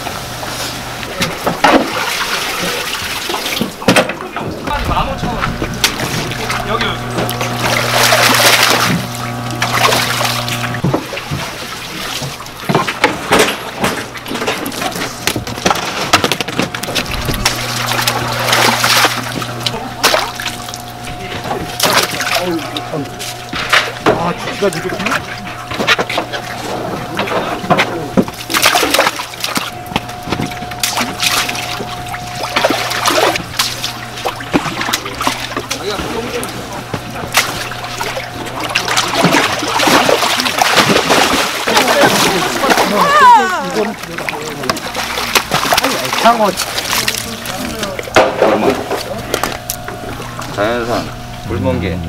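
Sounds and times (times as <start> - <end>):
steady low hum: 0.0 - 52.0
water splashing: 0.0 - 52.0
water streaming off net: 5.7 - 12.5, 17.0 - 21.1.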